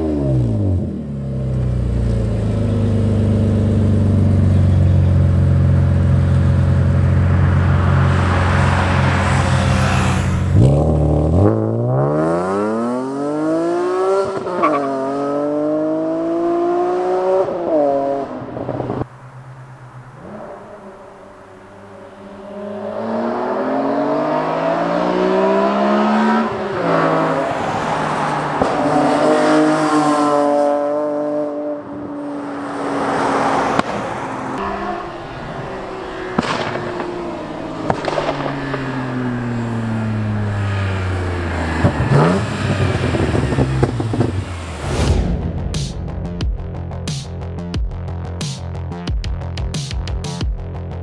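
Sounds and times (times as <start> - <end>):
car engine revving and passing: 0.0 - 47.7
sharp exhaust cracks: 33.7 - 48.9
music: 45.1 - 51.0.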